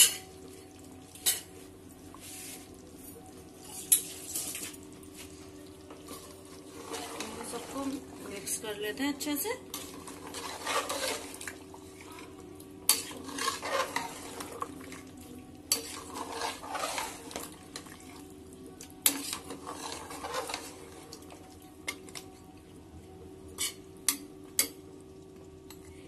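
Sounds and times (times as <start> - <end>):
metal spoon scraping a pot: 6.2 - 8.0, 9.7 - 11.5, 12.9 - 14.7, 15.7 - 17.5, 19.0 - 21.0.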